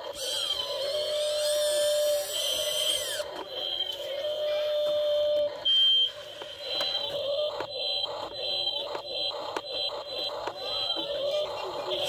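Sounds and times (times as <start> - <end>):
small electric motors whining: 0.0 - 5.6.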